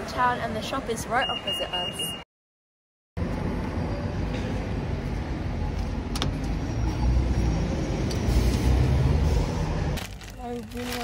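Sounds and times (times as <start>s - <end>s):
rumble of passing vehicles: 3.2s - 11.0s.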